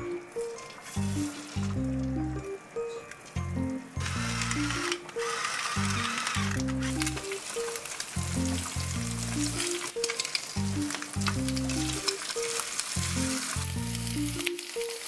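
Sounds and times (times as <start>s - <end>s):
eggs sizzling in hot oil: 0.0s - 2.2s, 3.6s - 15.0s
crackling pops: 4.4s - 15.0s.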